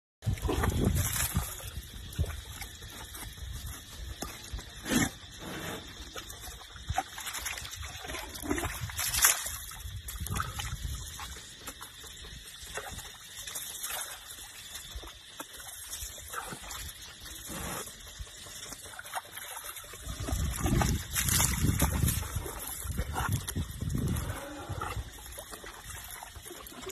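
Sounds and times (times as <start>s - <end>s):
water splashing into pool: 6.2s - 24.2s, 25.0s - 26.9s.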